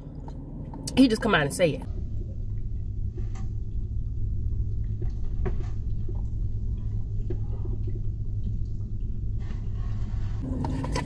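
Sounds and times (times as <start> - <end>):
low rumble inside a car: 0.0 - 11.0
chewing with mouth closed: 1.9 - 9.8.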